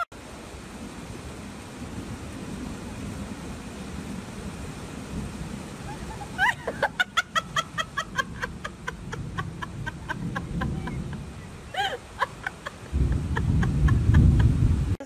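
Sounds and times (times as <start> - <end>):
high-pitched laughter: 5.9 - 14.5
wind noise on microphone: 7.8 - 15.0.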